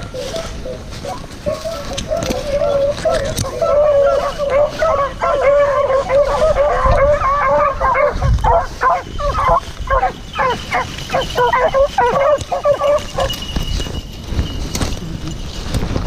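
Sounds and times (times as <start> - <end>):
dogs howling and yelping: 0.0 - 14.0.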